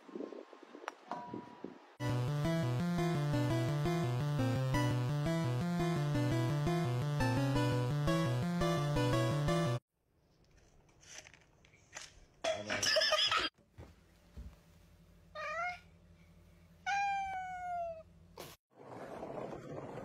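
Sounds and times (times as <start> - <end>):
cat meowing: 15.4 - 15.9, 16.9 - 18.1.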